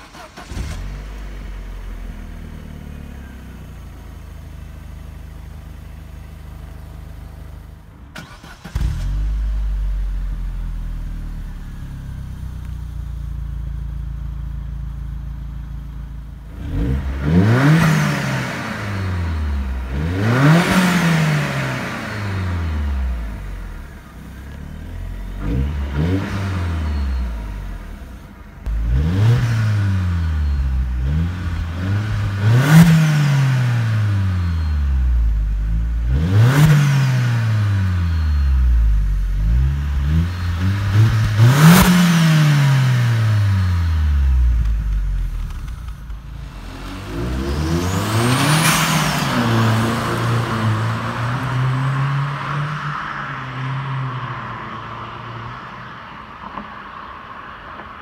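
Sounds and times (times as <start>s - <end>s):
engine revving: 0.0s - 3.5s, 8.2s - 10.8s, 16.4s - 54.2s
car engine starting and idling: 0.0s - 57.9s.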